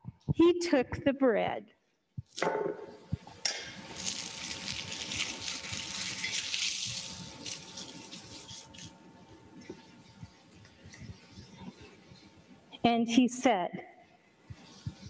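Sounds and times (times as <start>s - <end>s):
bread tearing with crackling rustle: 3.8s - 9.0s.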